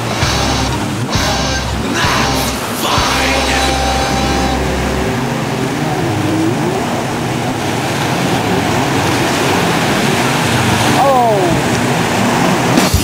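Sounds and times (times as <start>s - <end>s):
breaking surf: 0.0s - 13.0s
jet ski engine revving: 0.0s - 13.0s.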